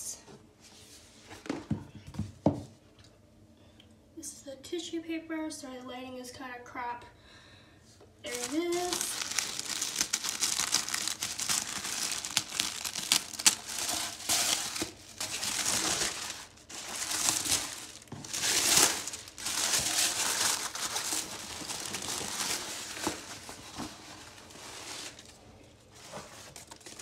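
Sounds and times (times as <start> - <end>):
tissue paper rustling: 8.3 - 27.0.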